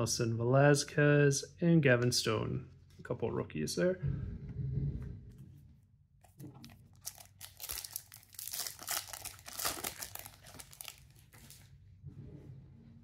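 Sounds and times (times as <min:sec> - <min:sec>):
foil wrapper tearing and crinkling: 0:06.6 - 0:11.6.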